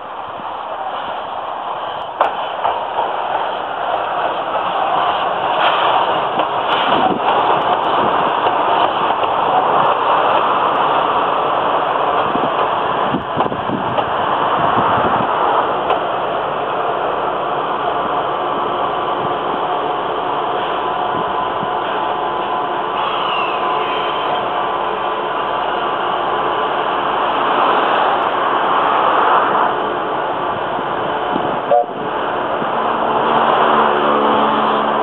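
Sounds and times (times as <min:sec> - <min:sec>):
train running past: 0:00.0 - 0:35.0.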